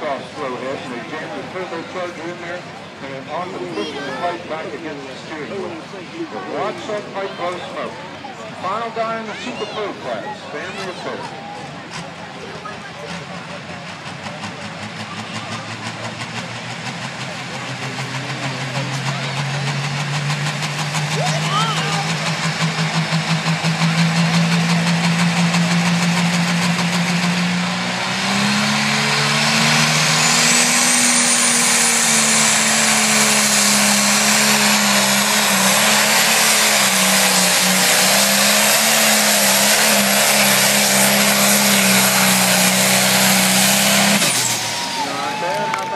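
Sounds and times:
diesel tractor engine: 0.0s - 45.9s
turbocharger whine: 14.0s - 45.9s.

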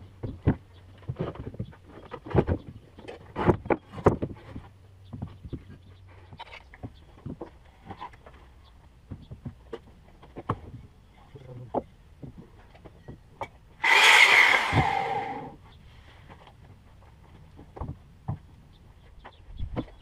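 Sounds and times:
loud hissing noise: 13.8s - 15.5s.

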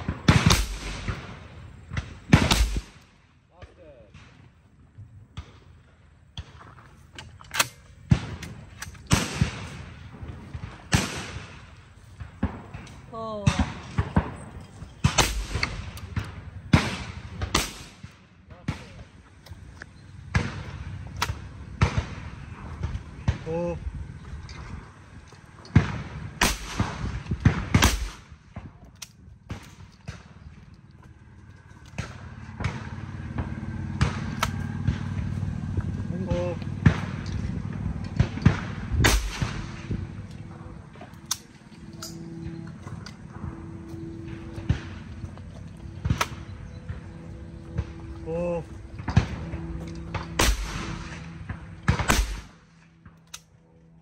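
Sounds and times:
shotgun shots echoing: 0.0s - 4.5s, 7.5s - 19.2s, 20.2s - 23.8s, 25.7s - 28.8s, 36.2s - 42.4s, 45.9s - 53.1s.

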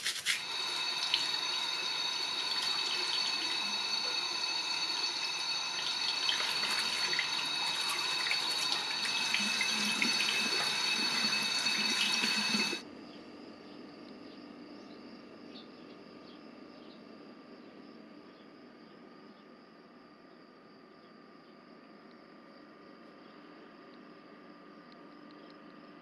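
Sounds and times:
tap water running into sink: 0.1s - 12.8s.

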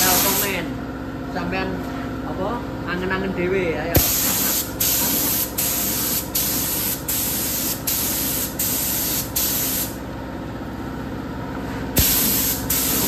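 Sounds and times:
spray gun hissing: 0.0s - 0.5s, 4.0s - 10.0s, 12.0s - 13.0s.

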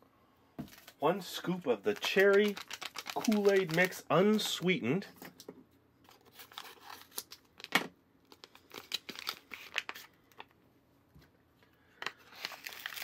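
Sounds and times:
paper packet crinkling: 0.6s - 4.7s, 6.1s - 10.5s, 12.0s - 13.0s
scissors snipping paper packet: 1.6s - 4.6s.

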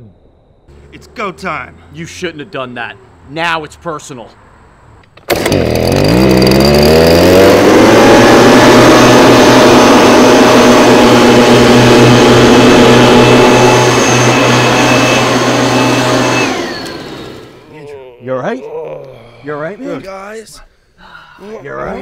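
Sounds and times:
two-stroke blower engine revving: 5.2s - 17.7s.

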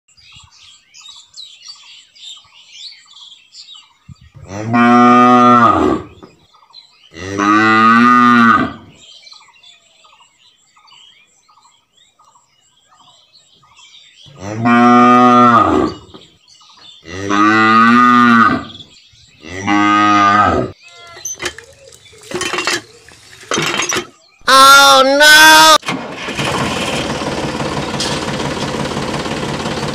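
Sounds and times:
faint bird chirping: 0.1s - 4.7s, 8.7s - 14.7s, 18.2s - 24.6s
cows mooing: 4.4s - 6.1s, 7.1s - 8.9s, 14.3s - 16.0s, 17.0s - 18.8s, 19.4s - 21.5s.

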